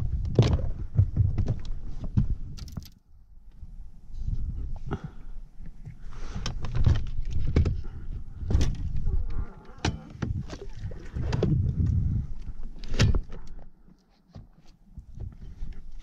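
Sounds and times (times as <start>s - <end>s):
knocks and clunks of trolling motor: 6.4s - 12.2s.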